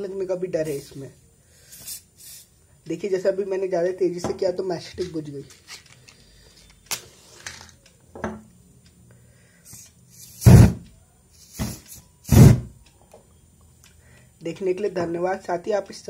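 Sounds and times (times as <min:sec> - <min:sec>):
aerosol spray flaring whooshes: 0:10.2 - 0:10.8, 0:11.4 - 0:12.7.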